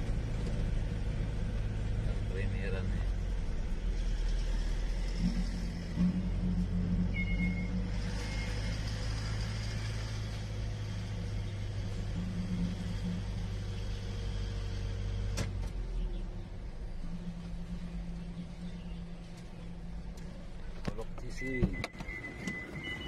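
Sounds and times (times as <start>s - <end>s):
truck engine running: 0.0s - 23.0s.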